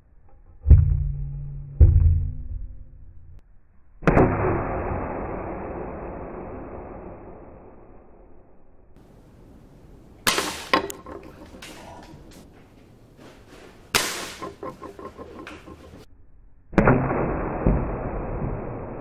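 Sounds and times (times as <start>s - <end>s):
slowed-down muffled impact: 0.3s - 3.4s
air rifle shots: 10.2s - 11.2s, 13.9s - 15.2s
pellets striking metal lid: 14.0s - 16.0s.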